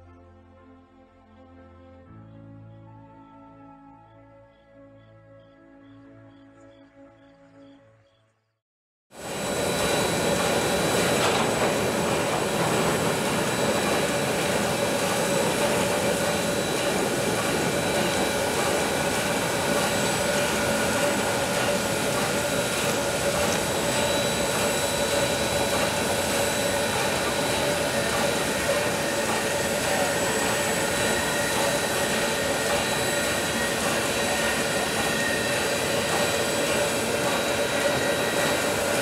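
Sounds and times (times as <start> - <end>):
model train whirring hum: 9.2 - 39.0.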